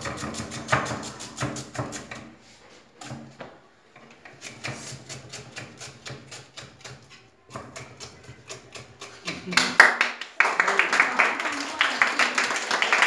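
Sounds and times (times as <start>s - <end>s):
knife chopping on wooden board: 4.4s - 9.2s.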